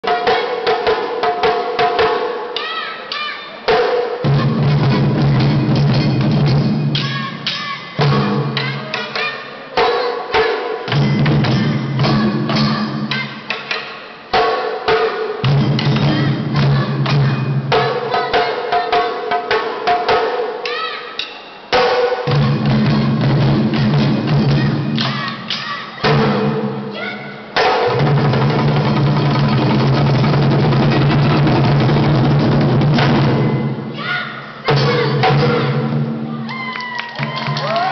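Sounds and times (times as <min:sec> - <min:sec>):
taiko drums struck hard: 0:03.7 - 0:08.7, 0:09.8 - 0:13.2, 0:14.3 - 0:18.1, 0:26.0 - 0:26.9, 0:27.6 - 0:33.8, 0:34.7 - 0:36.2.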